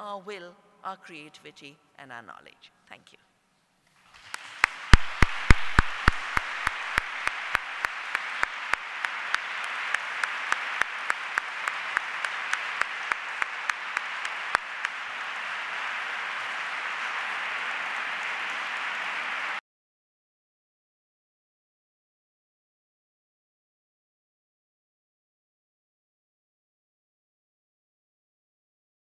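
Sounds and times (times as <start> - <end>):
audience applauding: 4.1 - 19.6
loud close claps: 4.1 - 19.6.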